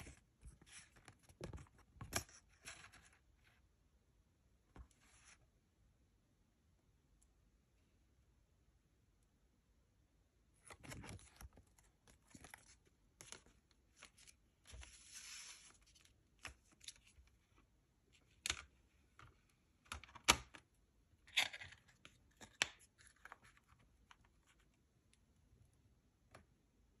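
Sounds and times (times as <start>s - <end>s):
paper rustling: 10.6s - 17.3s.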